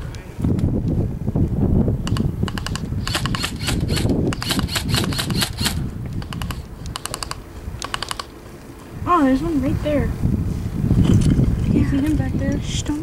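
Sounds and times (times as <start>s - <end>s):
airsoft guns firing bursts: 2.5s - 5.8s.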